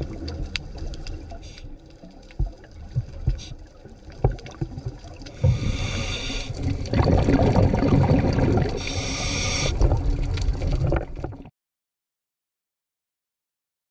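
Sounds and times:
exhaled bubbles rushing: 0:00.0 - 0:11.5
regulator inhalation hiss: 0:05.4 - 0:06.6, 0:08.8 - 0:09.8.

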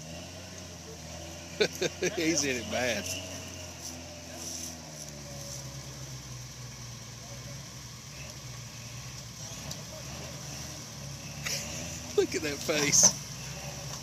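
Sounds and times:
truck engine idling: 0:00.0 - 0:14.0.

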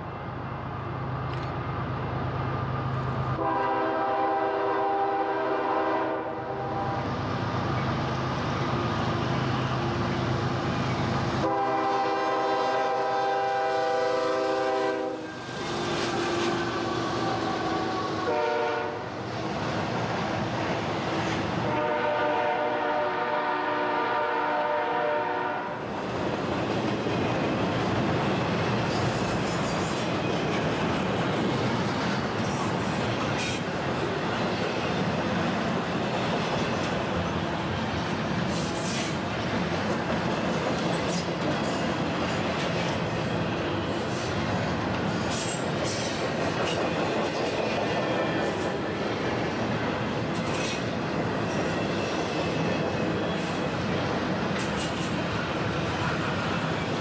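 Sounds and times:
train rumble and wheel clatter: 0:00.0 - 0:57.0
train air horn blasts: 0:03.4 - 0:07.1, 0:11.4 - 0:19.1, 0:21.6 - 0:25.8.

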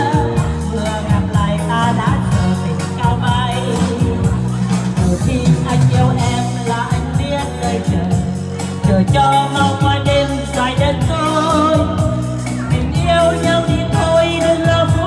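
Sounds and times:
keyboard backing: 0:00.0 - 0:15.0
woman singing into a microphone: 0:00.0 - 0:15.0.

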